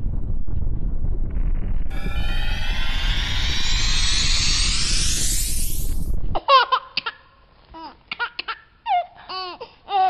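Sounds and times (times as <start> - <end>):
cartoon rocket whoosh: 1.9 - 6.4.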